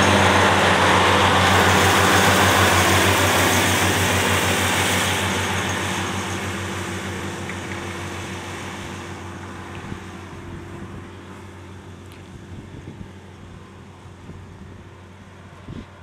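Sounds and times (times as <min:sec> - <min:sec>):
tractor engine running: 0:00.0 - 0:16.0
wind buffeting microphone: 0:12.1 - 0:16.0.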